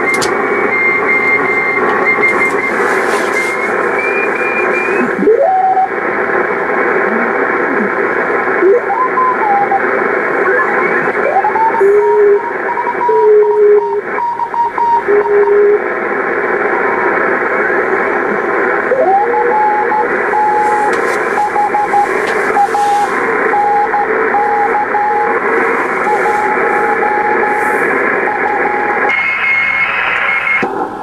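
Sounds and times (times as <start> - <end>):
morse code whistling tones: 0.0 - 6.0, 8.8 - 9.9, 10.5 - 15.8, 18.9 - 30.6
radio static hiss: 0.0 - 31.0.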